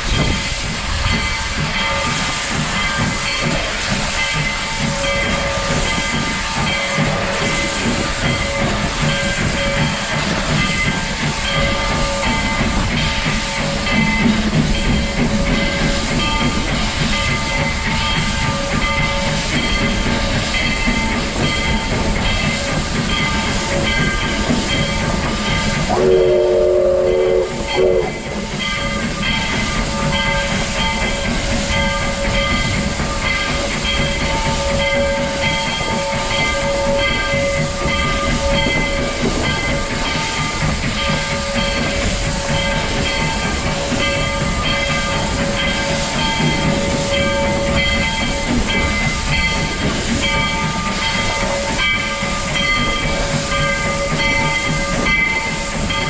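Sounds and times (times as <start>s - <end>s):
steam locomotive hissing steam: 0.0s - 56.0s
steam whistle toots: 25.8s - 28.5s.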